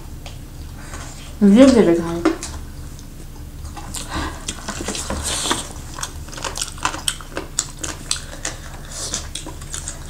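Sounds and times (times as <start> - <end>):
steady low hum: 0.0 - 10.0
wet chewing clicks and smacks: 2.9 - 10.0.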